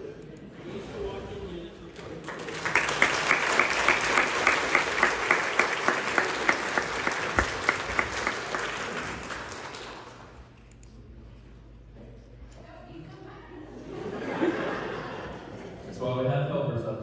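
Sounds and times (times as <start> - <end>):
close hand clapping: 2.2 - 10.4
congregation applauding: 2.2 - 10.5.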